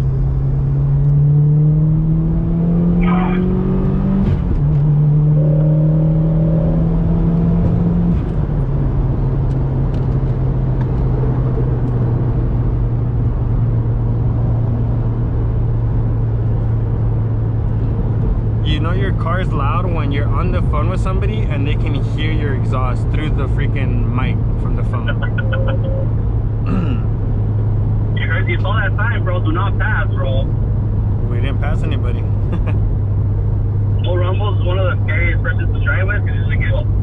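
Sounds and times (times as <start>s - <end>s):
car engine accelerating through gears: 0.0s - 18.9s.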